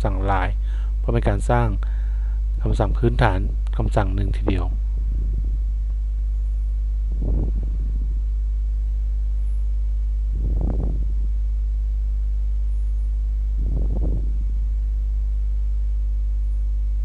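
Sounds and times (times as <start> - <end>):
electrical hum: 0.0 - 17.0
soft rushing sounds: 4.8 - 11.3.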